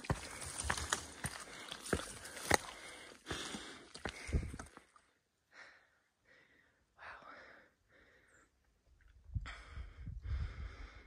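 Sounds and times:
heavy breathing: 0:01.2 - 0:04.6, 0:09.5 - 0:11.0.

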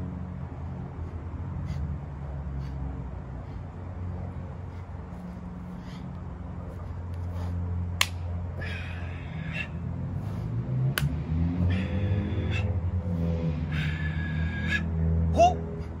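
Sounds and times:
steady low rumble: 0:00.0 - 0:16.0
sharp snaps: 0:07.9 - 0:08.3, 0:10.9 - 0:11.2.

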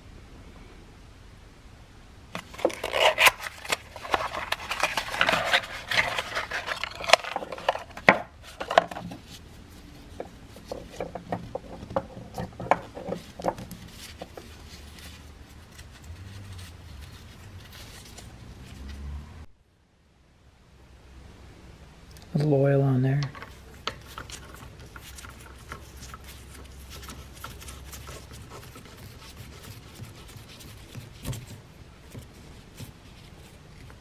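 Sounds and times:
light taps and rubbing: 0:02.4 - 0:18.3, 0:23.2 - 0:34.0
cardboard box rustling: 0:02.4 - 0:18.4, 0:23.4 - 0:34.0.

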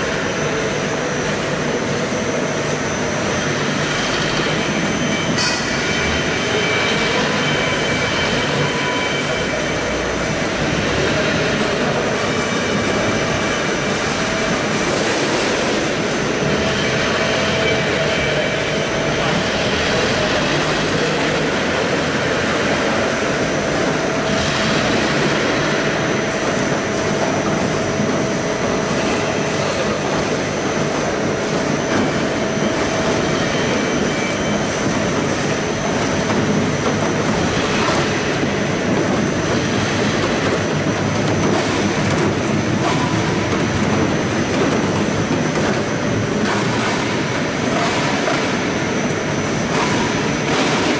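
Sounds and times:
machinery din with whine: 0:00.0 - 0:50.9
apples clattering on conveyor: 0:34.7 - 0:50.9.

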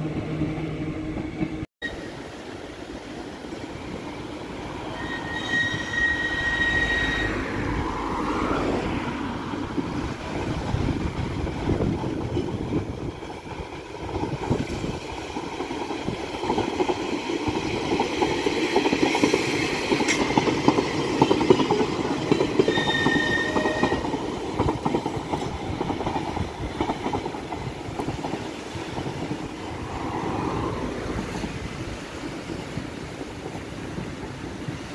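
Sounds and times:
electric tram running past: 0:00.0 - 0:34.9
wheels clicking over rail joints: 0:09.6 - 0:29.5.

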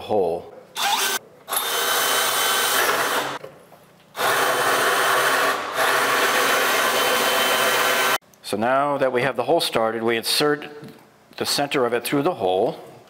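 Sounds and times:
power drill drilling into wood panel: 0:00.8 - 0:03.4, 0:04.2 - 0:08.2.

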